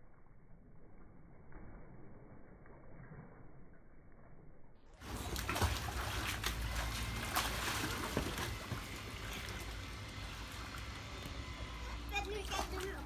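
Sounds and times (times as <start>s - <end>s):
water splashing in paddling pool: 5.0s - 13.0s.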